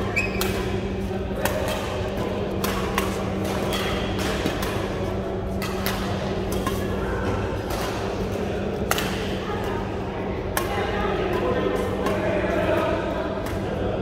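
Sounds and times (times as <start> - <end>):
steady low hum: 0.0 - 14.0
rackets hitting shuttlecocks: 0.2 - 9.4.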